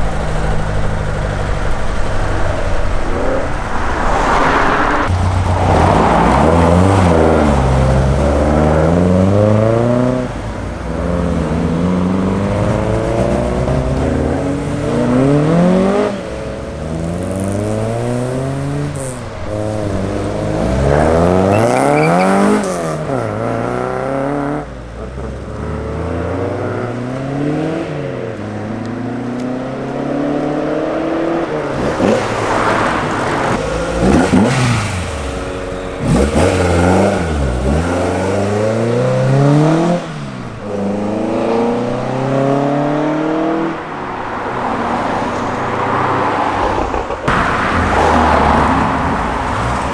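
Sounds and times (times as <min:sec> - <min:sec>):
car engines revving: 0:00.0 - 0:49.9.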